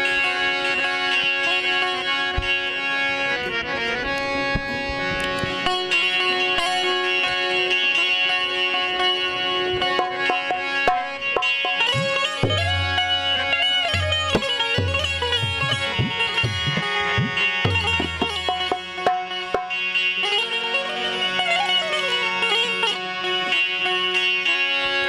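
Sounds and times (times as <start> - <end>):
plucked strings: 0.0 - 24.4
drum strokes: 10.9 - 13.1, 13.9 - 19.7.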